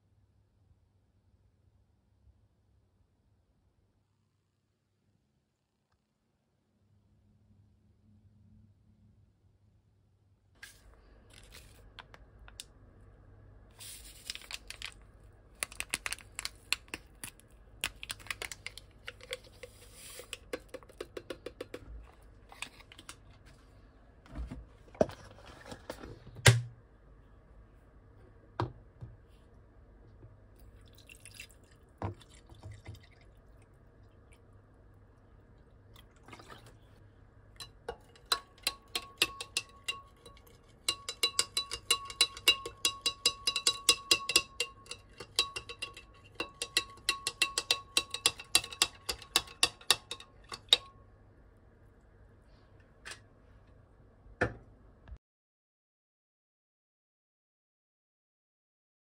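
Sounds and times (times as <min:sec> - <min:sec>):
liquid sounds: 0:30.5 - 0:42.5
small clicks and taps on glass: 0:37.6 - 0:50.9
spoon clinking against glass: 0:37.6 - 0:50.9.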